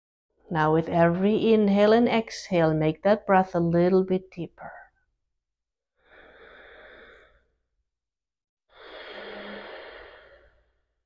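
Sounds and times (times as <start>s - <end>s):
woman breathing through nose: 6.0s - 7.6s, 8.7s - 10.9s.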